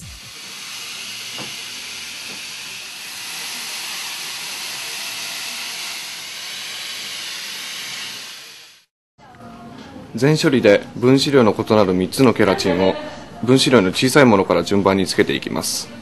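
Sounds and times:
hair steamer hissing: 0.0 - 8.9.

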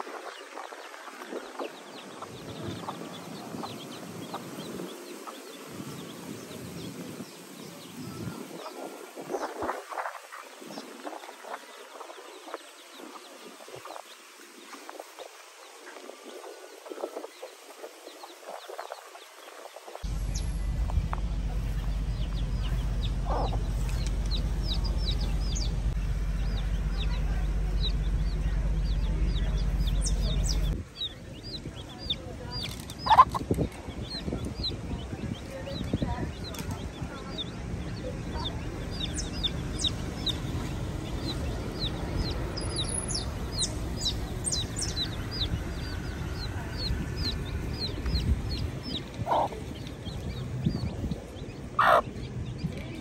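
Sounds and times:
chicks peeping: 0.0 - 53.0
low rumble: 20.0 - 53.0
hen clucking: 20.9 - 37.6, 38.3 - 52.6.

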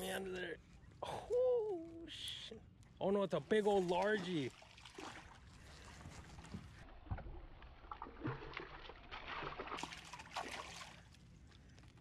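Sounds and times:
fish splashing in water: 4.2 - 6.8, 7.7 - 11.2.

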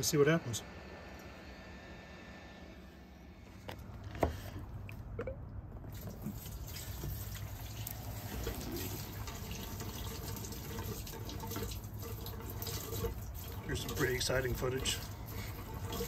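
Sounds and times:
fuel pouring into tank: 5.8 - 16.0.

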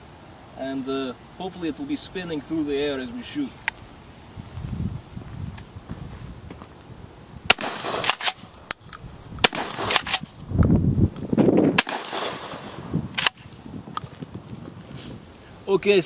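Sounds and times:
shotgun shots: 7.5 - 8.5, 9.4 - 10.3, 11.7 - 13.5.

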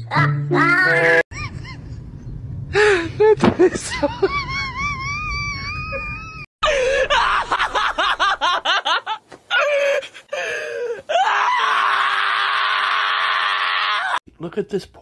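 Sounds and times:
high-pitched laughing: 3.2 - 9.2
harsh scream: 11.1 - 14.2.

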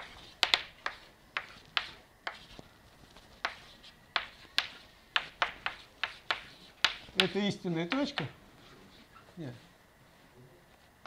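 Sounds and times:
chalk tapping on blackboard: 0.0 - 8.4.

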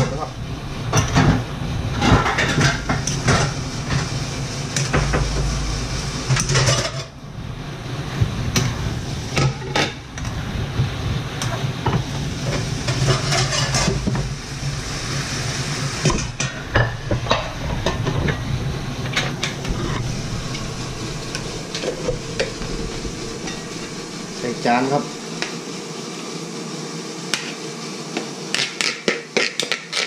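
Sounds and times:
low hum: 0.0 - 26.0
spatula scraping frying pan: 12.4 - 14.1, 16.1 - 24.4.

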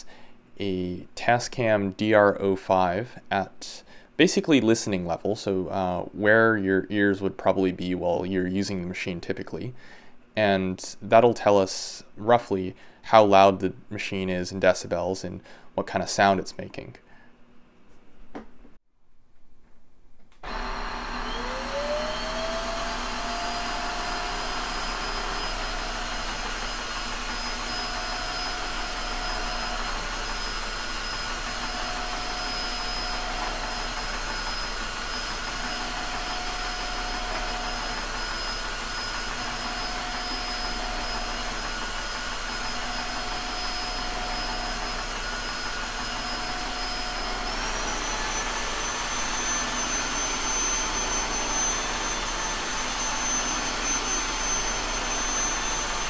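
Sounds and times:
floor washer motor whine: 20.4 - 56.0.

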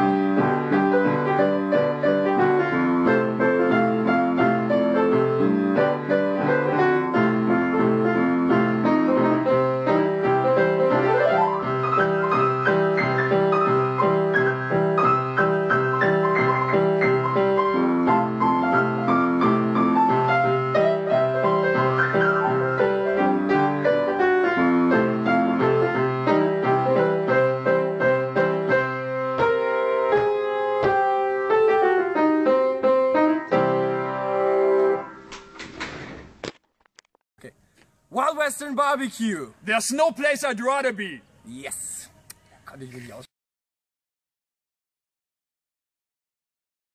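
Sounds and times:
piano music: 0.0 - 35.3.

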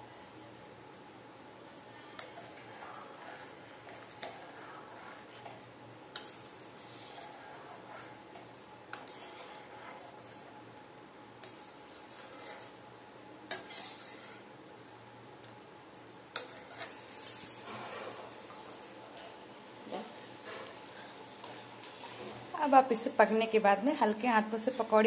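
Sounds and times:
spatula scraping pan: 2.2 - 5.6, 6.2 - 10.6, 11.4 - 12.8, 13.5 - 14.5, 16.3 - 17.0, 17.6 - 18.6.

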